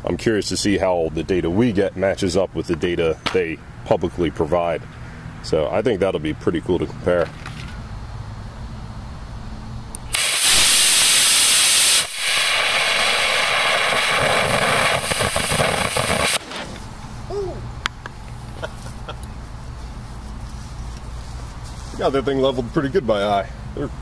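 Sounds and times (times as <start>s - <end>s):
rocket motor hissing: 9.9s - 17.0s.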